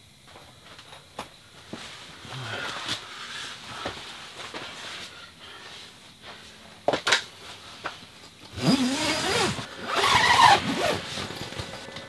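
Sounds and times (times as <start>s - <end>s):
tent zip being pulled: 8.6s - 11.4s.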